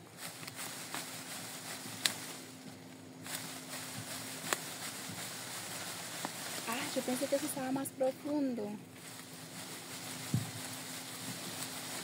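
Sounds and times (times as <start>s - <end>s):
leaves and stems rustling: 0.0s - 12.0s
plant stems snapping: 0.2s - 1.1s, 1.9s - 3.5s, 4.4s - 4.8s.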